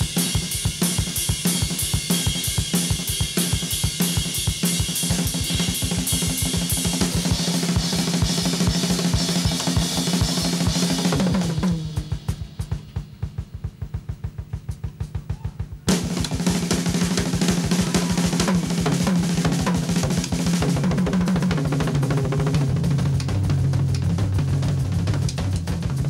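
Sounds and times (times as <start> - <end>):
drum kit beat: 0.0 - 26.0
funk-rock band playing: 4.8 - 21.5
bass line: 8.5 - 20.1.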